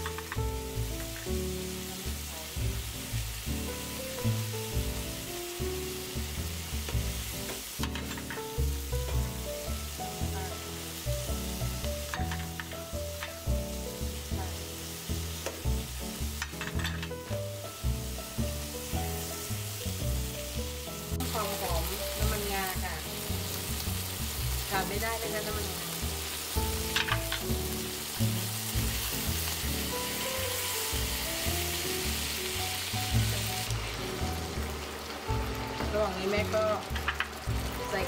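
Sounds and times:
utensil clicking against pan: 0:00.0 - 0:01.3, 0:12.0 - 0:13.4, 0:26.8 - 0:27.6, 0:36.9 - 0:37.4
food sizzling in hot oil: 0:00.0 - 0:38.0
light background music: 0:00.0 - 0:38.0.

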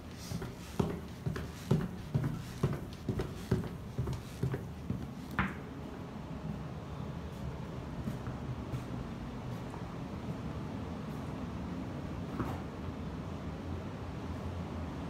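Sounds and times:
footsteps going down stairs: 0:00.0 - 0:06.0.

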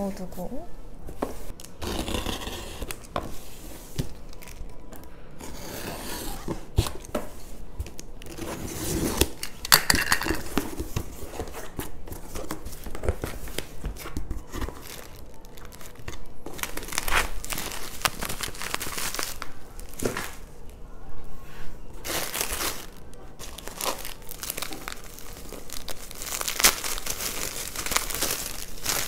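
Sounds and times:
plastic and bubble wrap crinkling: 0:00.0 - 0:21.1, 0:22.0 - 0:29.0
box cutter slitting packing tape: 0:01.8 - 0:03.1.

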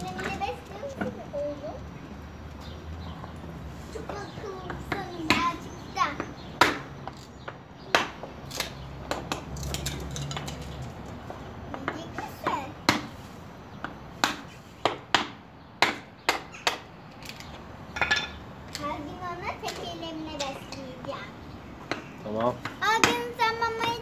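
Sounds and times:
child's voice: 0:00.0 - 0:01.9, 0:03.8 - 0:06.5, 0:11.7 - 0:12.9, 0:18.7 - 0:21.5, 0:22.8 - 0:24.0.

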